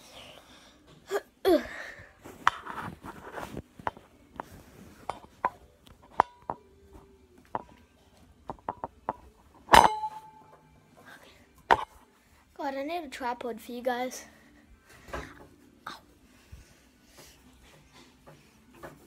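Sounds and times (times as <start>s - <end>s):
metal bed frame knocking and clinking: 8.6s - 10.7s
loud ringing metal clank: 9.7s - 10.5s.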